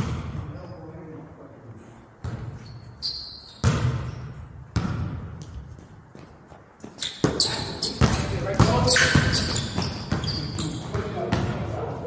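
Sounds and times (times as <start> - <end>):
basketballs bouncing on wooden floor: 0.0 - 0.4, 3.6 - 11.8.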